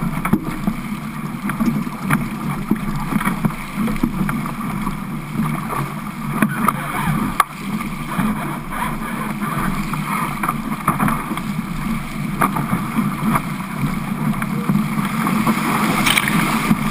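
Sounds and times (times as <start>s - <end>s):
water rushing along boat hull: 0.0s - 16.9s
waves slapping against boat: 0.0s - 16.9s
wind on microphone: 8.1s - 16.9s.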